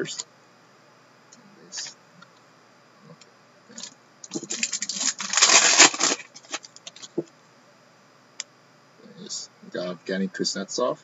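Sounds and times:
foil wrapper tearing and crinkling: 3.8s - 6.8s.

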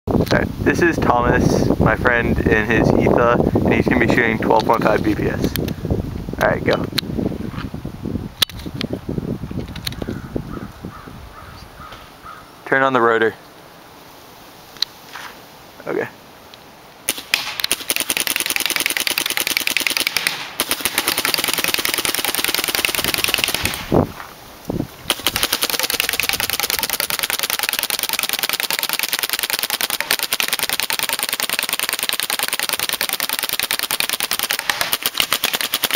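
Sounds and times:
paintball marker rapid firing: 17.1s - 24.0s, 25.0s - 35.9s.

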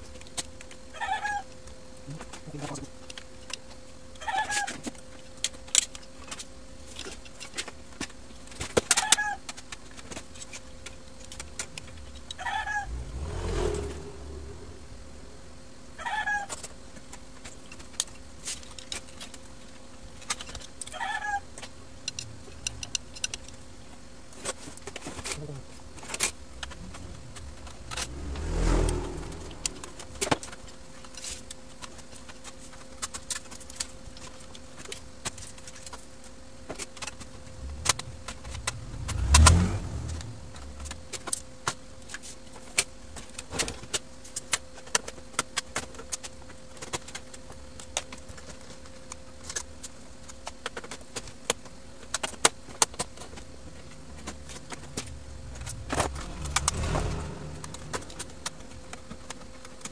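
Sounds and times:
faint steady hum: 0.0s - 59.9s.

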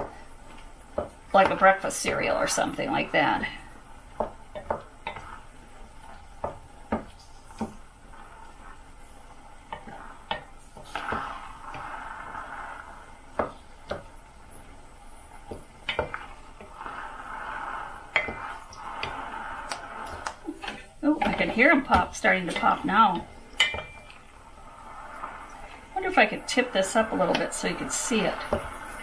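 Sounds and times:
sizzling: 0.0s - 29.0s
soft scraping: 14.5s - 29.0s.

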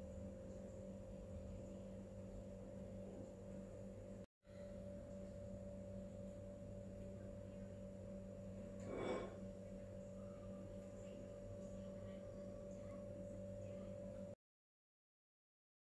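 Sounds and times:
faint steady hum: 0.0s - 14.4s.

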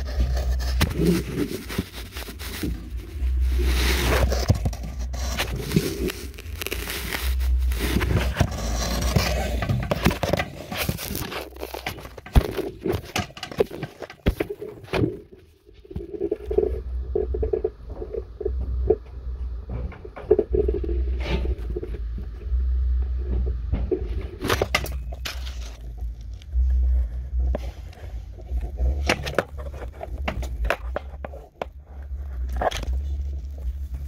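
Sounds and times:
low rumble: 0.0s - 10.2s, 14.5s - 34.0s
camera scraping flue walls: 0.0s - 22.4s.

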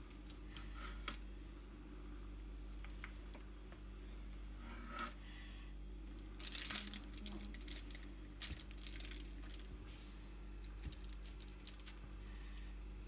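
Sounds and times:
parchment paper crinkling: 6.1s - 12.6s.

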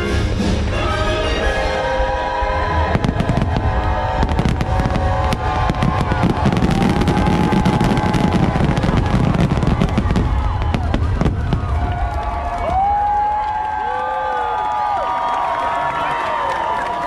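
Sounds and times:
soundtrack music with held notes: 0.0s - 4.0s
fireworks bangs and crackles: 2.7s - 13.8s.

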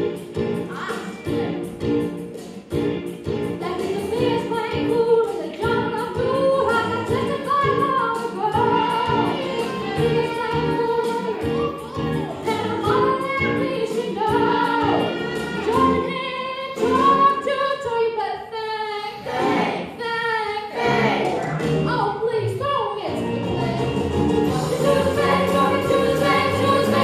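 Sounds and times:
instrumental backing: 0.0s - 17.7s, 20.9s - 27.0s
chorus singing: 8.4s - 17.1s, 19.1s - 20.0s, 20.6s - 21.6s, 23.2s - 27.0s.

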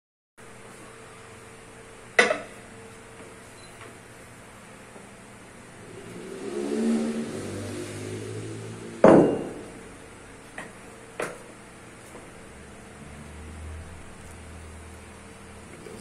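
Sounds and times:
low rumble: 5.6s - 9.8s.

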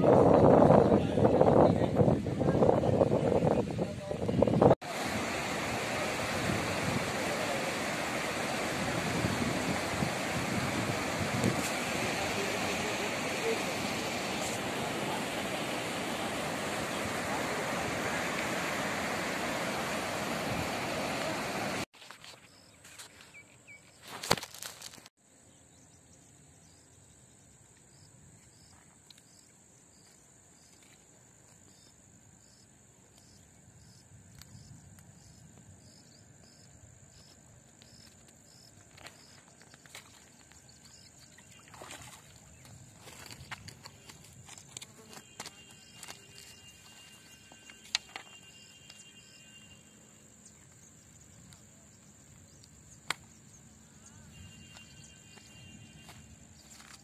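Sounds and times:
water rushing through spillway: 4.8s - 21.9s.

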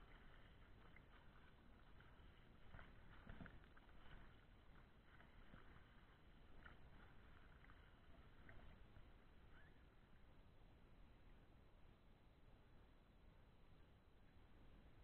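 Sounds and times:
lake water lapping: 0.0s - 9.7s.

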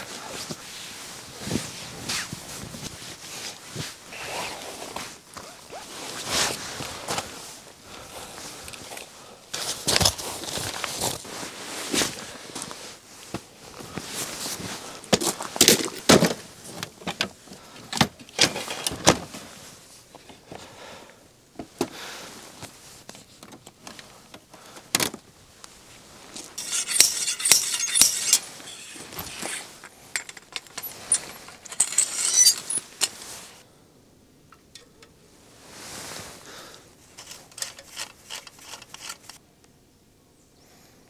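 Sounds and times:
camping gear clinks and knocks: 8.4s - 11.3s, 13.4s - 19.4s, 26.2s - 33.6s, 37.0s - 39.4s.

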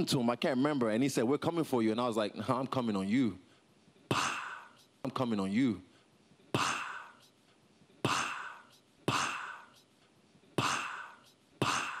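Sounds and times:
man making breathy pssh sound: 3.8s - 5.0s, 5.9s - 12.0s.

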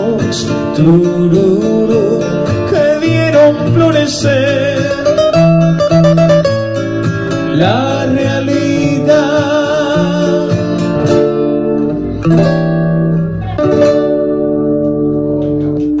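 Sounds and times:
man singing with vibrato: 0.0s - 5.5s, 7.4s - 10.8s
acoustic guitar chords ringing: 0.0s - 16.0s.

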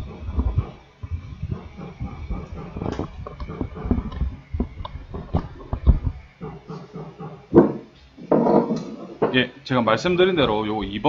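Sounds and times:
heavy thump: 7.5s - 8.8s.

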